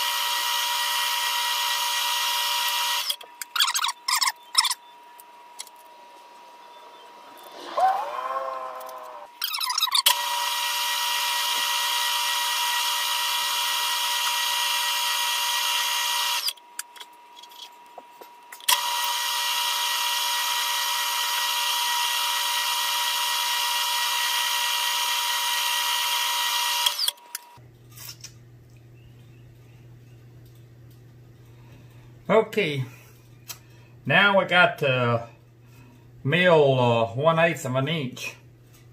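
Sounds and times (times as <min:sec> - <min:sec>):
drill boring through metal: 0:00.0 - 0:03.2, 0:09.3 - 0:16.6, 0:18.7 - 0:27.2.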